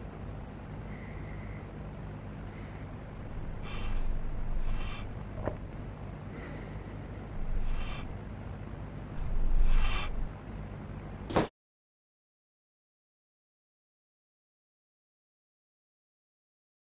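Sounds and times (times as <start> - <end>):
low hum: 0.0 - 11.3
man breathing heavily: 2.4 - 8.3, 9.2 - 10.4.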